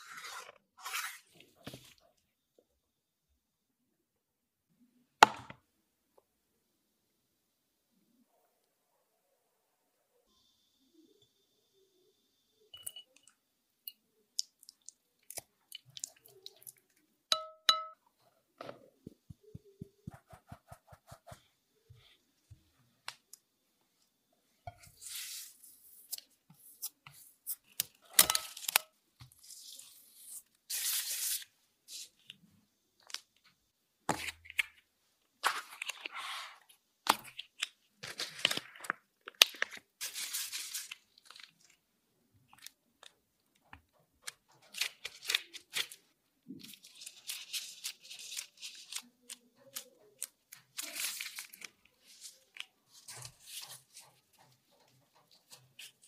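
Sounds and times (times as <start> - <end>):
plastic gloves rustling: 37.4 - 41.9, 44.2 - 56.0.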